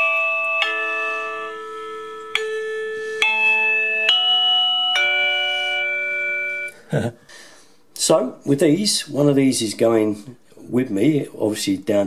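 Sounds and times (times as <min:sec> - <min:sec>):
electronic doorbell chime tune: 0:00.0 - 0:06.8.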